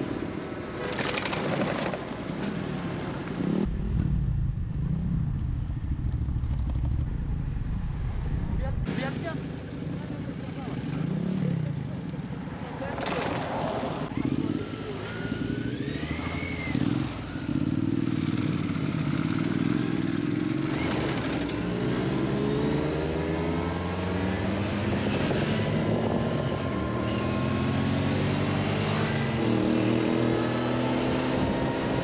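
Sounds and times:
motorcycle engines accelerating: 8.5s - 32.0s.

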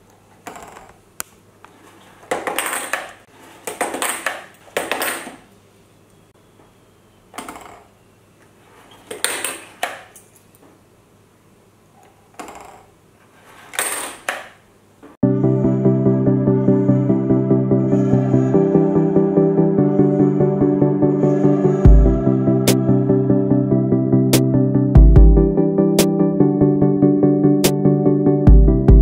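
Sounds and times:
coins clinking: 2.3s - 5.5s
music: 15.2s - 29.0s.

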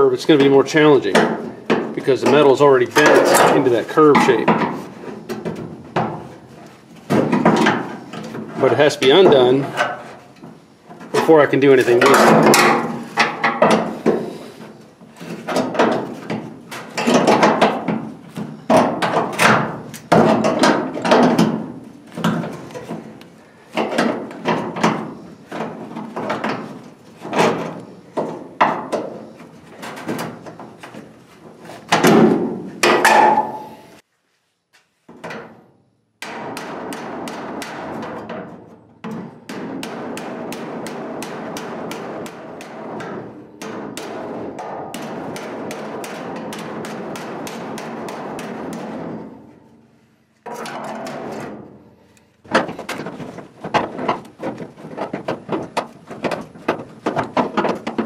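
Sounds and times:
hammer ringing on sheet metal: 32.8s - 33.8s, 39.5s - 49.3s.

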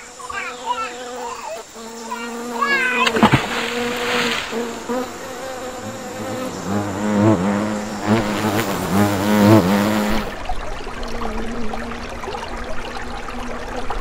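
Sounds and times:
flying insect buzzing: 0.0s - 10.4s.

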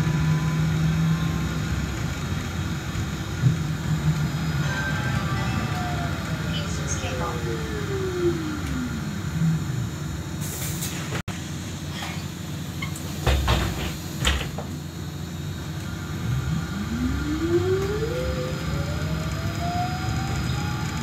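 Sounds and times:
low steady rumble: 0.0s - 10.4s
air hiss: 10.4s - 11.1s
electric motor whine rising: 15.8s - 21.0s.

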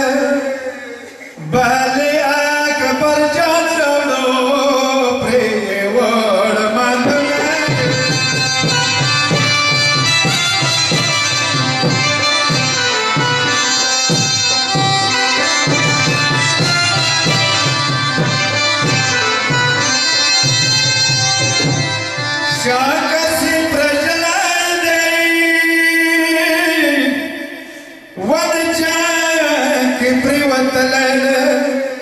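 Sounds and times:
held melody: 7.0s - 23.7s
steady drum beat: 7.1s - 22.2s.

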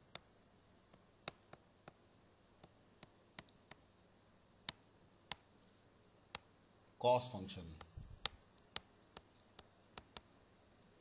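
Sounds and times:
stylus tapping on tablet screen: 0.0s - 4.0s, 4.6s - 6.6s, 7.7s - 10.4s.

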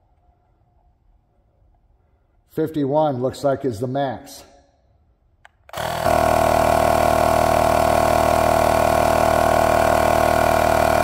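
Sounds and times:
tire inflator humming: 5.7s - 11.0s.

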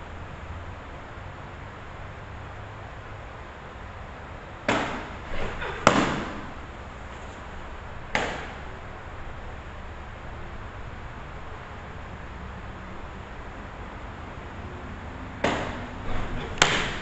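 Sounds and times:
softball smacking into mitt: 4.7s - 6.4s, 8.1s - 8.6s, 15.4s - 15.9s.

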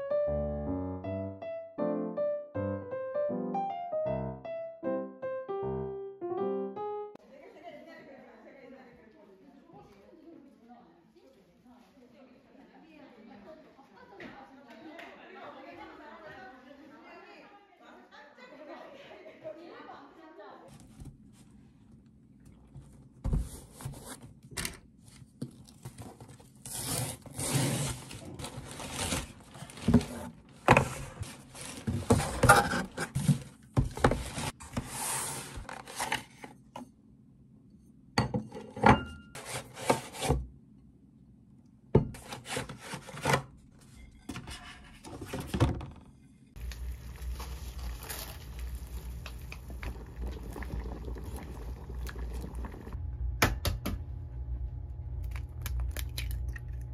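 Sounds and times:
cardboard and paper rustling: 25.0s - 36.6s, 46.6s - 49.2s
pot of water boiling: 46.6s - 53.0s.

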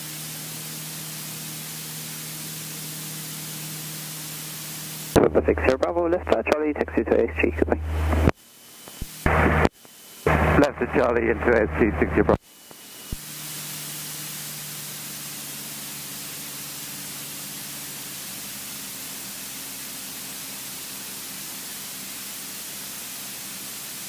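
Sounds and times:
faint aircraft engine drone: 0.0s - 24.0s
intercom audio hiss: 5.1s - 8.3s, 9.0s - 12.4s.

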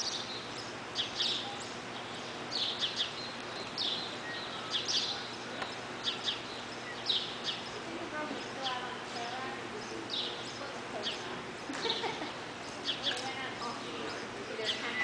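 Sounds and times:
small bird chirping: 0.0s - 11.3s
arena background noise: 0.0s - 15.0s.

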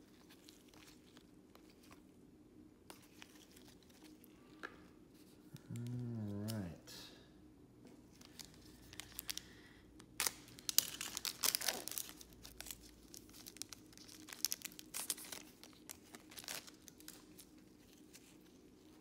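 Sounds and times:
foil wrapper tearing and crinkling: 8.2s - 18.6s.

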